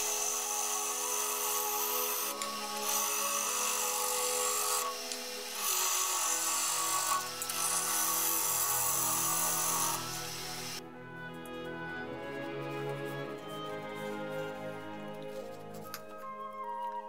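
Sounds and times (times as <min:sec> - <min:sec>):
lathe humming: 0:00.0 - 0:10.8.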